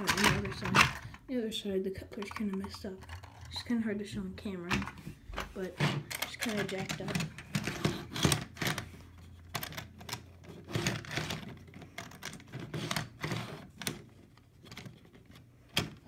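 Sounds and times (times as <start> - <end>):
plastic model train car clattering: 6.1 - 8.9.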